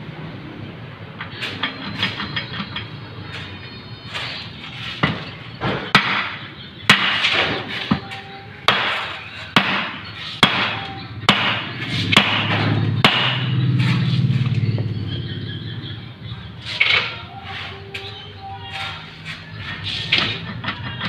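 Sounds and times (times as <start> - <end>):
hammer striking metal: 4.1 - 14.0.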